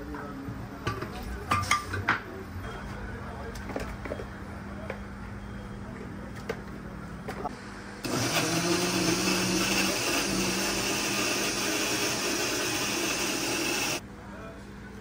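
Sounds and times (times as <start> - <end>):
loud machine hum: 7.6 - 14.0.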